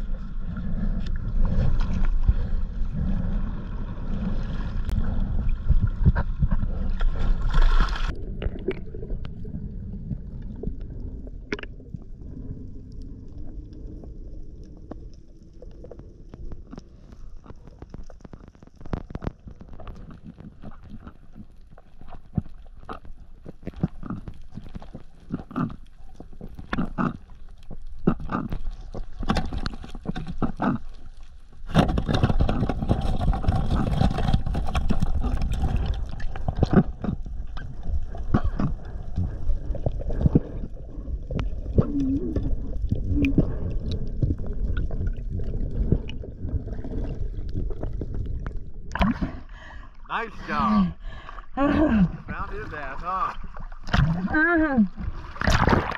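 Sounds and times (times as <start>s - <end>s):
gurgling rush of water and bubbles: 0.0s - 55.9s
muffled underwater clicks and knocks: 5.7s - 9.4s, 11.5s - 12.0s, 15.8s - 40.5s.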